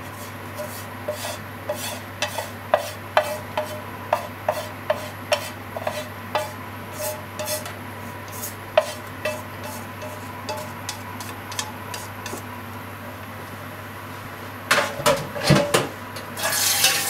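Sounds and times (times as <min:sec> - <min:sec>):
chopsticks scraping a frying pan: 0:00.0 - 0:12.4, 0:16.4 - 0:17.0.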